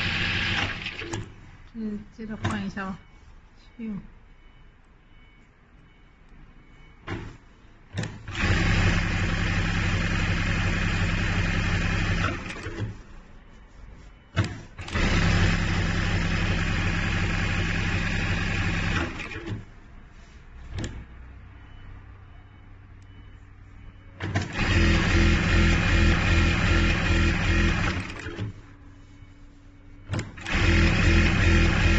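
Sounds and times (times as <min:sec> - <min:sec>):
sewing machine stitching: 0:00.0 - 0:01.3, 0:08.0 - 0:12.9, 0:14.4 - 0:19.6, 0:24.2 - 0:28.5, 0:30.1 - 0:31.9.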